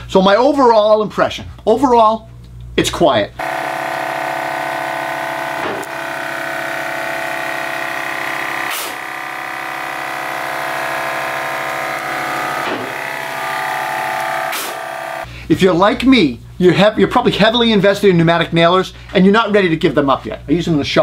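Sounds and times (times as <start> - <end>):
air compressor humming: 3.4 - 15.5.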